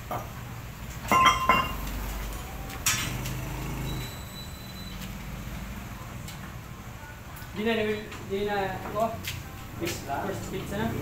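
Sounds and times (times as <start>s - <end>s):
metal clinks and clanks: 1.1s - 1.9s.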